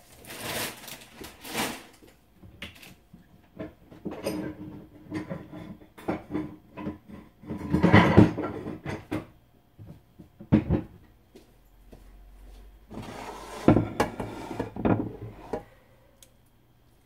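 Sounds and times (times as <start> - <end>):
scraping rustle: 0.0 - 2.0
kitchen things knocking and clattering: 2.4 - 11.0, 13.0 - 15.7.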